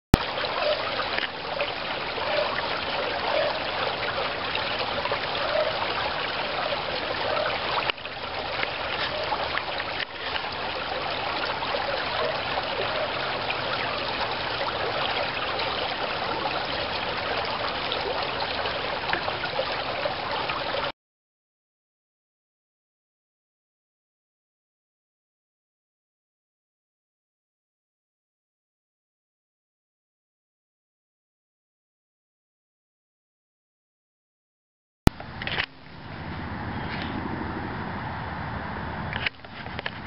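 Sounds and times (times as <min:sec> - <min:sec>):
creek water running and trickling: 0:00.2 - 0:20.9, 0:35.1 - 0:40.0.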